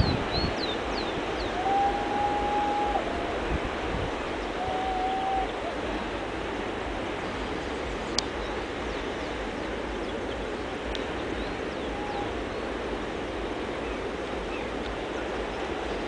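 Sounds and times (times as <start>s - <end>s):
distant surf breaking: 0.0s - 16.0s.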